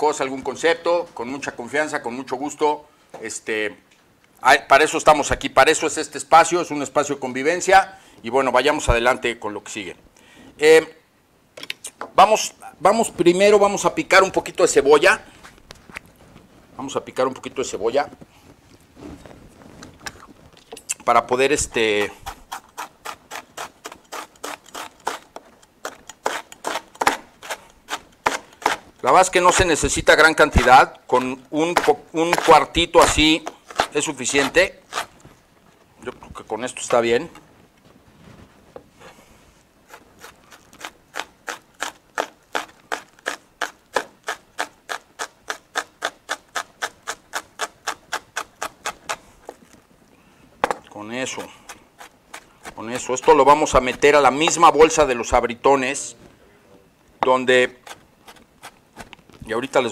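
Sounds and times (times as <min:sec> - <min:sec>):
knife chopping on plastic board: 0:31.7 - 0:34.6.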